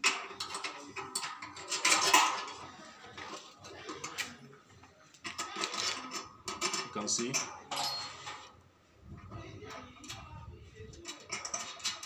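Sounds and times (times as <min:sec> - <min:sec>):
small metal parts clinking: 0:00.0 - 0:02.7, 0:05.2 - 0:08.6, 0:11.0 - 0:12.0.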